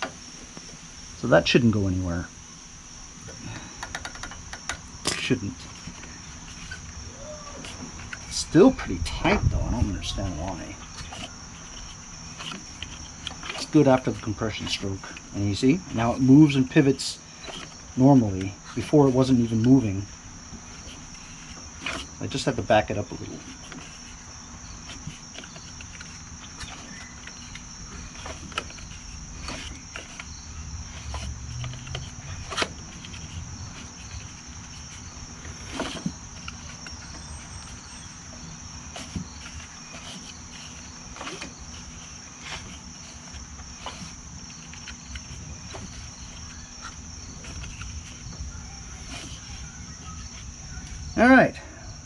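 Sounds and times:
insects chirring: 0:00.0 - 0:52.0
tools tapping on engine: 0:03.3 - 0:06.1.

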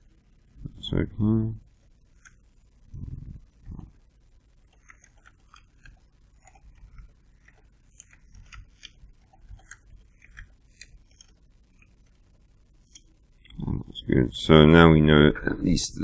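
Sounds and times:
computer keyboard typing: 0:04.6 - 0:12.2.

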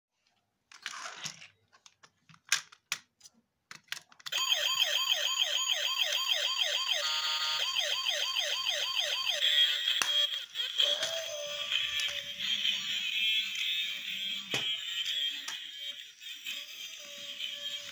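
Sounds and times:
toy electronic siren wailing: 0:04.3 - 0:17.9.

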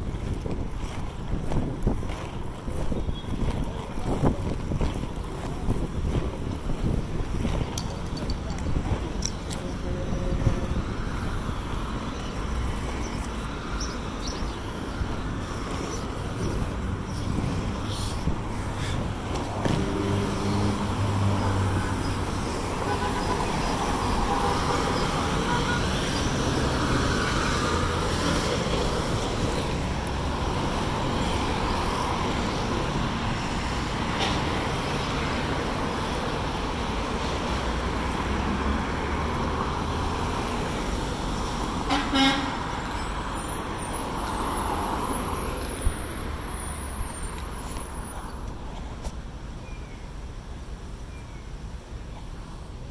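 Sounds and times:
cars passing: 0:00.0 - 0:51.0
car horn toot: 0:25.4 - 0:25.9, 0:41.9 - 0:42.6.

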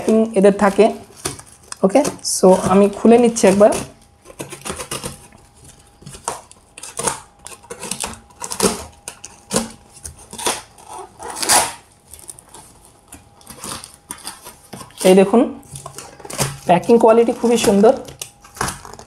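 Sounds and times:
knife slicing packing tape: 0:00.6 - 0:05.3, 0:06.1 - 0:12.4
cardboard flaps ripping and scraping: 0:06.0 - 0:12.8.

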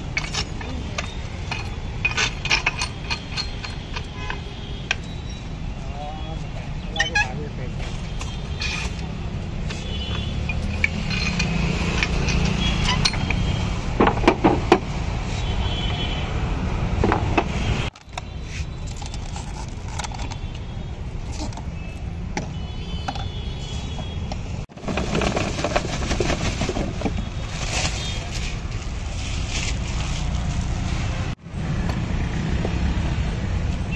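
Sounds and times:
glass bottles clinking: 0:00.0 - 0:05.1, 0:10.4 - 0:14.4
street traffic: 0:00.0 - 0:33.9.

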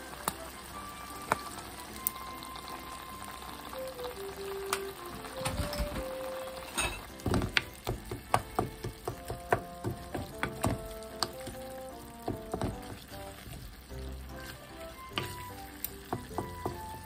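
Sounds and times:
wooden spatula scraping a frying pan: 0:12.2 - 0:17.0.

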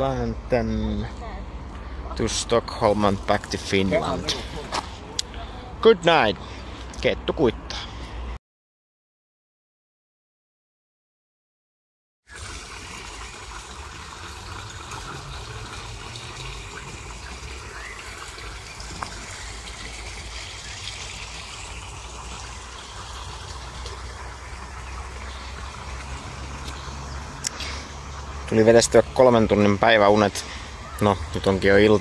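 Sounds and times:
water splashing into basin: 0:12.3 - 0:29.2.

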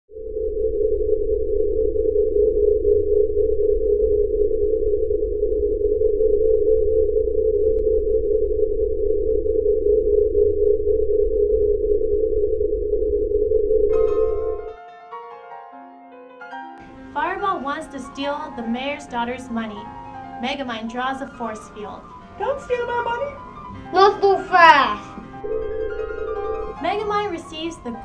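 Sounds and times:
loud steady electronic tone: 0:00.1 - 0:14.7, 0:25.3 - 0:28.0
low rumble: 0:00.2 - 0:14.7
piano music: 0:13.9 - 0:28.0.

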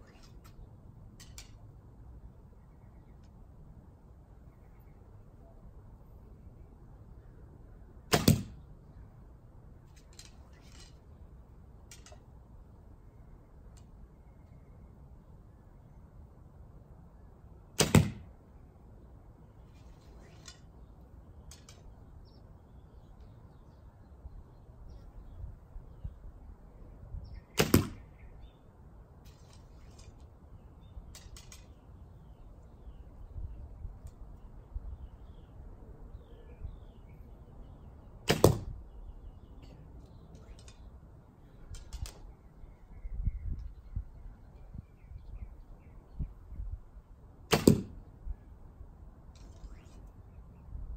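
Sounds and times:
faint birds chirping: 0:00.0 - 0:47.4, 0:48.0 - 0:50.9
arrow clicks from quiver: 0:01.2 - 0:01.6, 0:11.8 - 0:12.3, 0:31.1 - 0:31.8, 0:41.7 - 0:42.4, 0:47.5 - 0:48.0.

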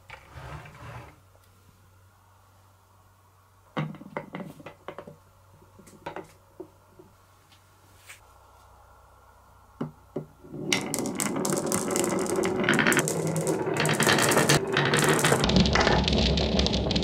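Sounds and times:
marbles clattering on wooden track: 0:10.5 - 0:17.0.

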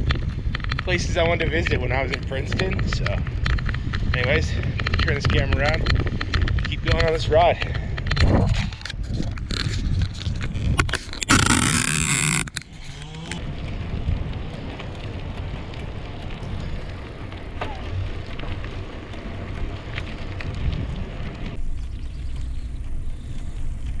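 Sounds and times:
bicycle tyre rumble: 0:00.0 - 0:24.0
wind on microphone: 0:00.0 - 0:24.0
loud rubbing on microphone: 0:08.2 - 0:13.4.

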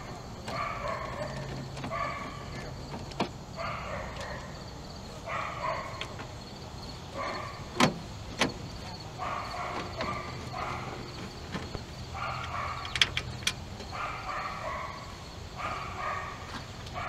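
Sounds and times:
dog barking: 0:00.5 - 0:02.6, 0:03.6 - 0:04.6, 0:05.2 - 0:06.2, 0:07.1 - 0:07.7, 0:09.1 - 0:11.1, 0:12.1 - 0:13.0, 0:13.9 - 0:17.0.

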